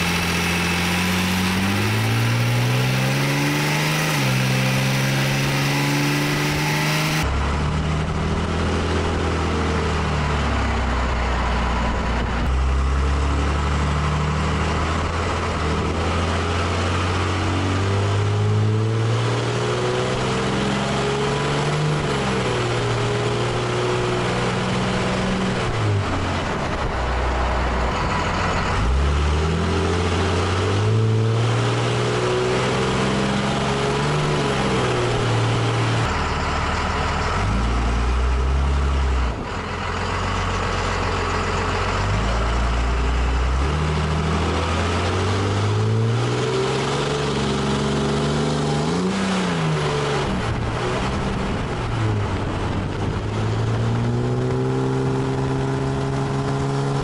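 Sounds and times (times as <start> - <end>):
diesel truck engine accelerating: 0.0 - 57.0
tyre and road noise: 0.0 - 57.0.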